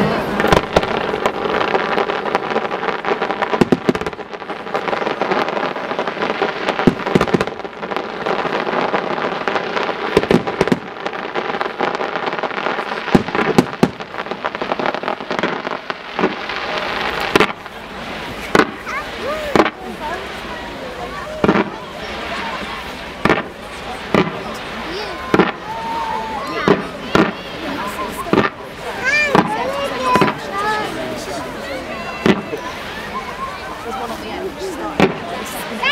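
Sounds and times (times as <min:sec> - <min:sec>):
fireworks crackling: 0:00.0 - 0:35.9
firework shells bursting: 0:00.4 - 0:19.8, 0:23.2 - 0:24.6.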